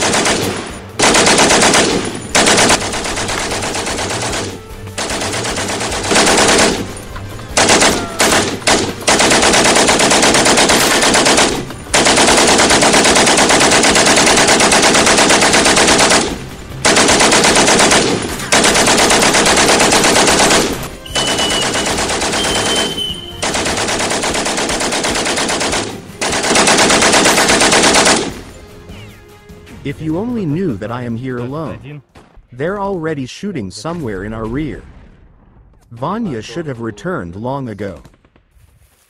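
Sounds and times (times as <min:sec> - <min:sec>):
machine gun firing bursts: 0:00.0 - 0:28.5.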